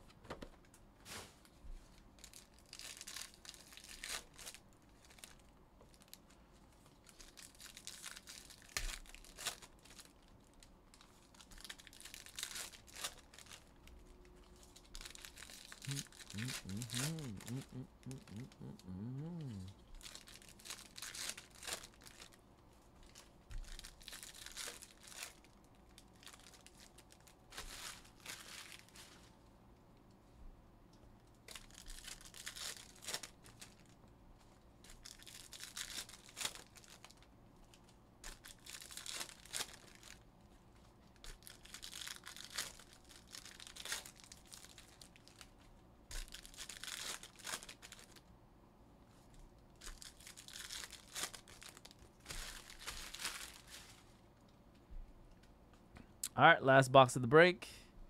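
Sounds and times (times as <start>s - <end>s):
foil packs tearing and crinkling: 2.2s - 5.4s, 7.0s - 13.7s, 14.8s - 18.7s, 20.0s - 22.4s, 23.1s - 29.1s, 31.5s - 33.9s, 34.9s - 37.3s, 38.2s - 40.2s, 41.2s - 45.5s, 46.1s - 48.2s, 49.8s - 54.0s.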